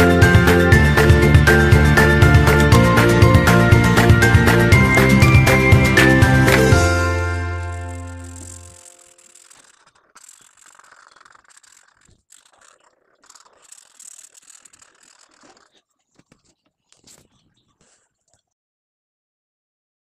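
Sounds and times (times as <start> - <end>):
marker pen scratching on paper: 6.0 - 18.5.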